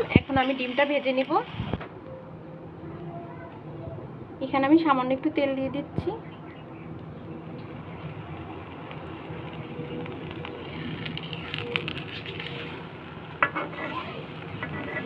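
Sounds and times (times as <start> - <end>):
batter sizzling in a pan: 0.0 - 1.8, 7.4 - 15.0.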